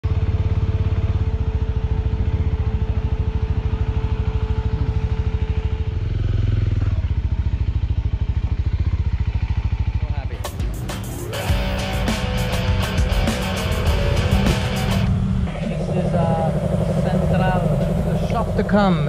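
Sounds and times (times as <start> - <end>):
small motorcycle engine running: 0.0 - 10.4, 11.2 - 19.0.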